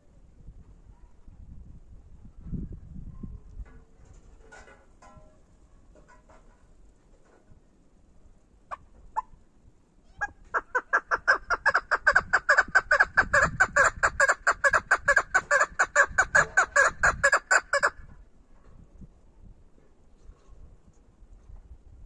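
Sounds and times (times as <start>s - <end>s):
partridge calling: 10.2s - 18.0s
fast clucking notes: 10.6s - 17.9s.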